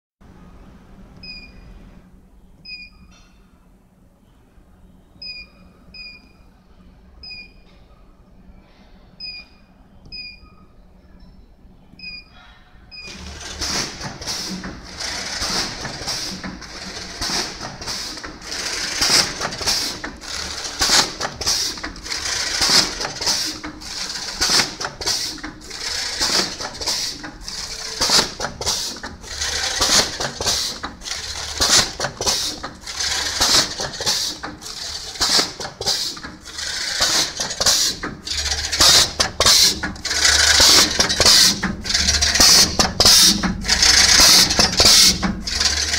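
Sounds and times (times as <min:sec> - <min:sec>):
bagging machine clattering: 0:13.1 - 0:45.9.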